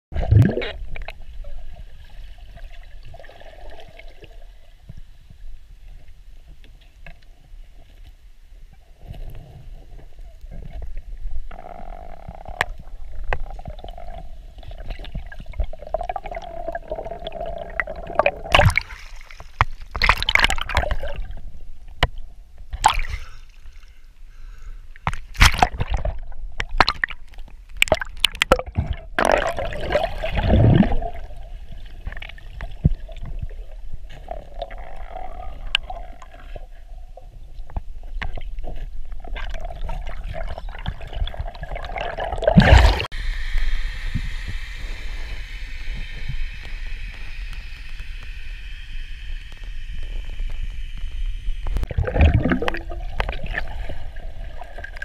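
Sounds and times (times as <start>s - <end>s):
water gurgling underwater: 0.1s - 4.7s, 9.2s - 21.6s, 25.3s - 43.1s, 51.1s - 55.0s
water rushing: 39.6s - 51.1s, 51.7s - 55.0s
steady low hum: 42.5s - 55.0s.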